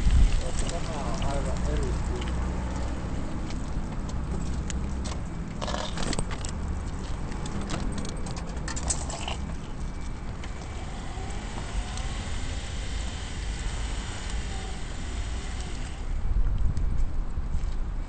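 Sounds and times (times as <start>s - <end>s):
vehicle running rumble: 0.0s - 18.0s
tyre hiss on wet road: 10.7s - 16.1s.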